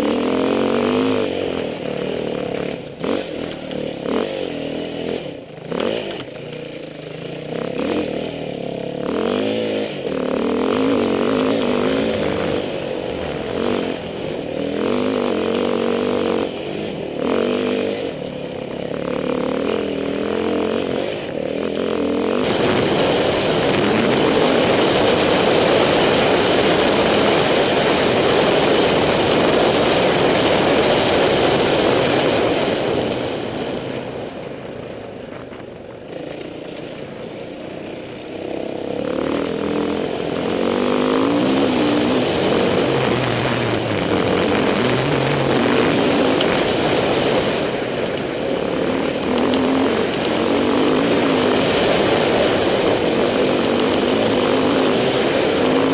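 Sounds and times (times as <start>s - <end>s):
dirt bike engine running: 0.0s - 55.9s.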